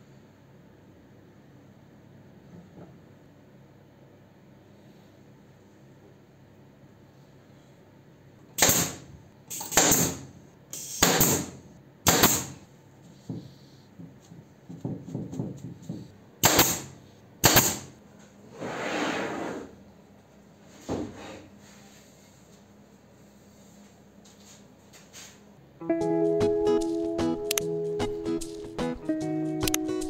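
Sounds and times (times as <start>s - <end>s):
nail gun firing: 8.6s - 12.6s, 16.4s - 18.0s
wooden frame scraping on bench: 18.5s - 19.8s.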